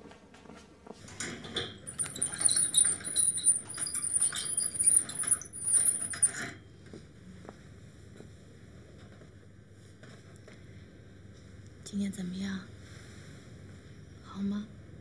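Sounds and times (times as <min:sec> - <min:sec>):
bed crank mechanism squeaking and clicking: 0:01.8 - 0:06.6.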